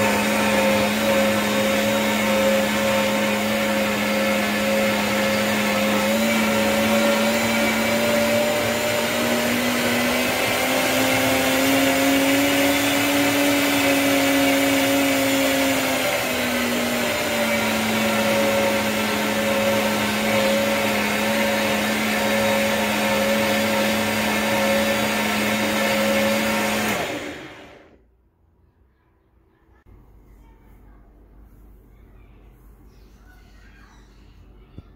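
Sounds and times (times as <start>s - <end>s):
blender motor whining: 0.0s - 28.0s.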